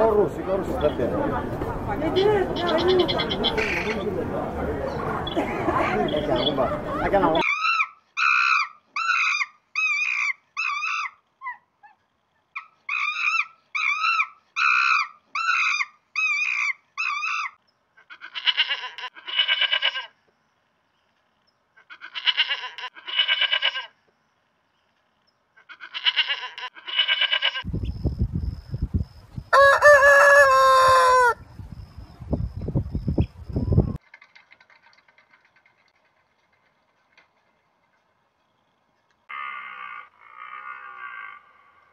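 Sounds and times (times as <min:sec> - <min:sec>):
goat bleating: 0:02.6 - 0:03.9, 0:18.1 - 0:20.1, 0:21.9 - 0:23.9, 0:25.7 - 0:27.6
rooster crowing: 0:29.5 - 0:31.5.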